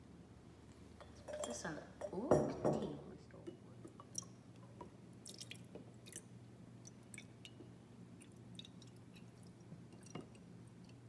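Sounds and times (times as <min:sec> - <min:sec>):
low steady hum: 0:00.0 - 0:11.0
small splashes and clicks: 0:05.2 - 0:07.6.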